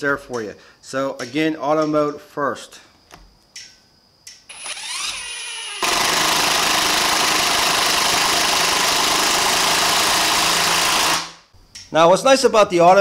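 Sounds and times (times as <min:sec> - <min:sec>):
impact driver motor whining: 0:04.5 - 0:11.3.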